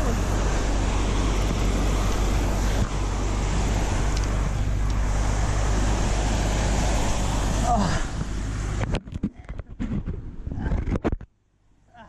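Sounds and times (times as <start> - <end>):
whitewater roaring through spillway: 0.0 - 9.0.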